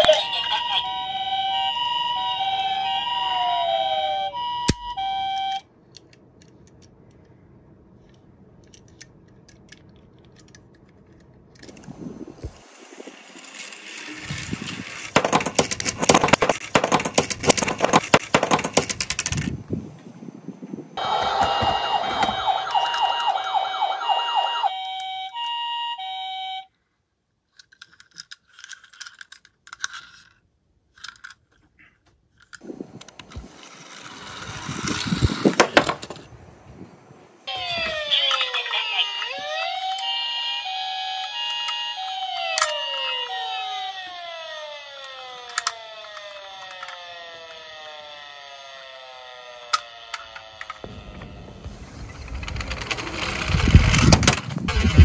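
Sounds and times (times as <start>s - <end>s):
two-tone emergency siren: 0.0s - 5.7s, 21.0s - 26.7s, 37.4s - 51.7s
toy car wheels rattling: 12.6s - 19.6s, 27.5s - 31.6s, 33.2s - 36.2s, 44.7s - 48.1s, 52.0s - 55.0s.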